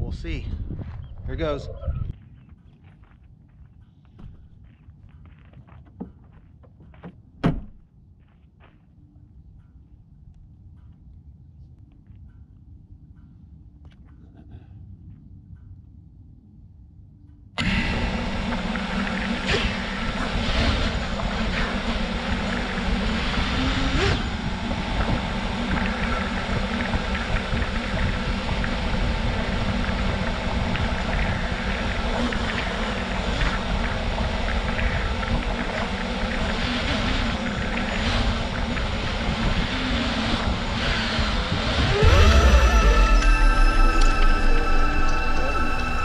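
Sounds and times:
drone motors buzzing: 17.6s - 46.0s.

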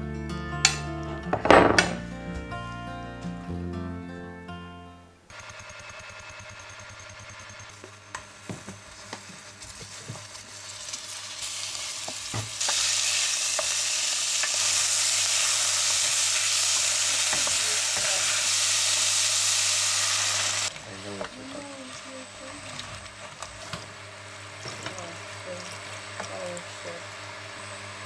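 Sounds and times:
meat searing in hot oil: 5.3s - 28.0s
wooden spoon stirring pot: 7.7s - 11.1s, 20.7s - 27.2s.

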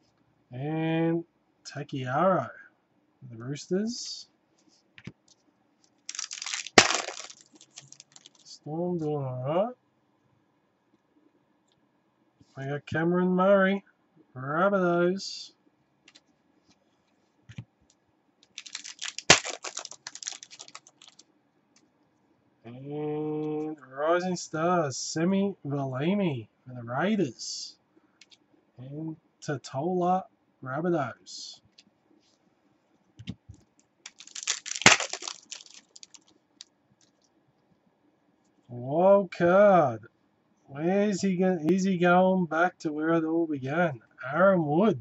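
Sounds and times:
foil wrapper tearing and crinkling: 6.1s - 8.5s, 18.4s - 21.2s, 34.1s - 36.3s.

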